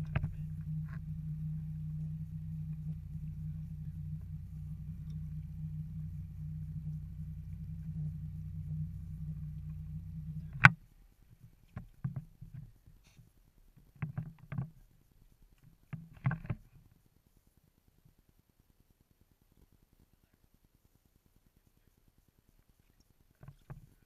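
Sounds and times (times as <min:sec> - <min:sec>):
boat engine humming: 0:00.0 - 0:10.8.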